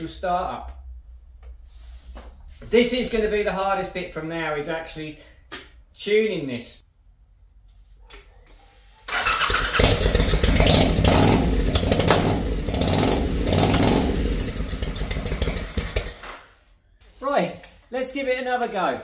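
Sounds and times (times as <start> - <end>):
motorcycle engine running unevenly: 9.7 - 16.2.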